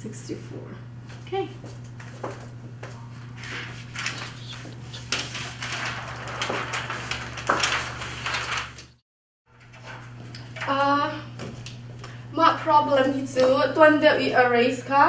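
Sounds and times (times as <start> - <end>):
rustling and clattering handling: 3.5 - 8.8.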